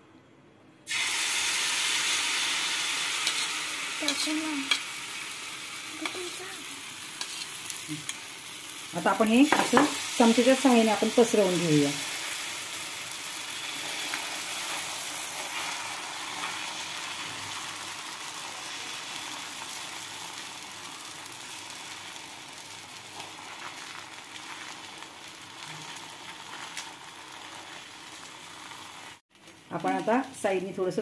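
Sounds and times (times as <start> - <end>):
batter sizzling in oil: 0.9 - 31.0
spoon scraping griddle: 3.2 - 4.9, 7.1 - 8.4, 25.6 - 28.0.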